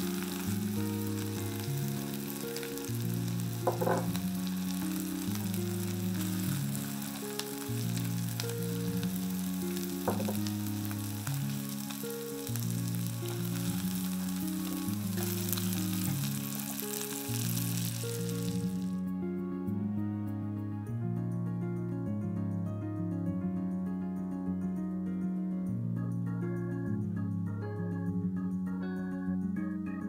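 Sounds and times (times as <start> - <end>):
food sizzling in a frying pan: 0.0 - 19.0
soft background music: 0.0 - 30.0
oil popping: 3.6 - 4.9, 10.0 - 10.6.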